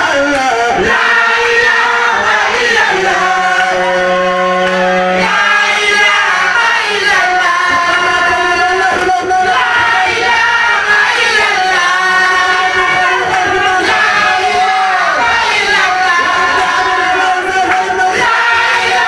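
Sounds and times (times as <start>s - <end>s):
men singing a religious chant: 0.0s - 19.0s.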